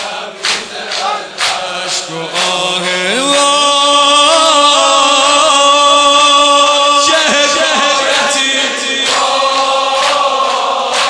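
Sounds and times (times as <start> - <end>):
person chanting a lament: 0.0 - 10.1
rhythmic strikes: 6.4 - 11.0.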